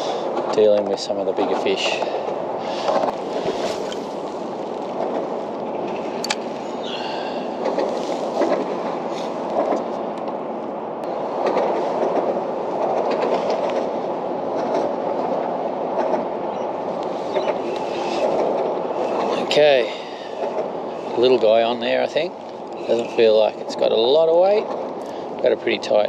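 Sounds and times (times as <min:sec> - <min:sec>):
traffic rumbling over bridge: 0:00.0 - 0:26.0
sharp clacks: 0:11.4 - 0:13.9, 0:14.5 - 0:16.3.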